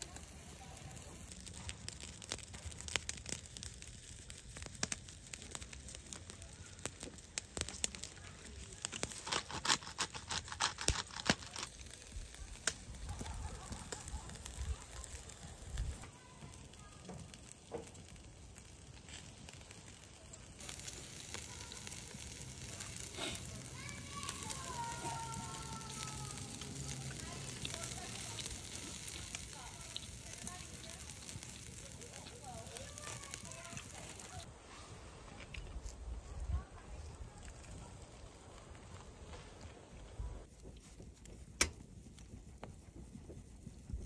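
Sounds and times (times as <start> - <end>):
charcoal grill crackling and popping: 0.0 - 44.0.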